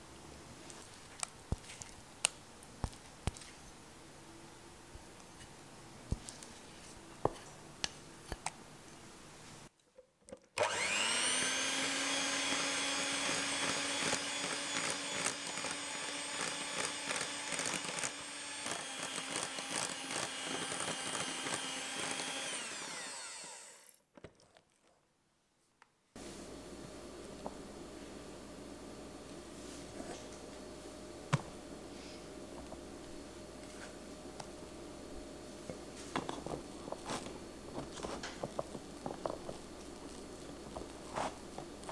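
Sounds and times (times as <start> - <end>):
electric hand mixer whine: 10.6 - 24.0.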